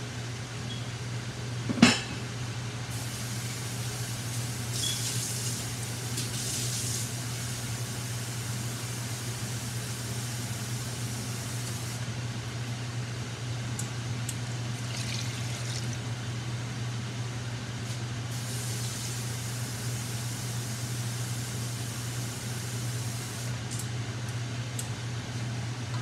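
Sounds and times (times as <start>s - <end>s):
low hum and hiss: 0.0s - 25.9s
water poured into pan: 14.8s - 16.1s.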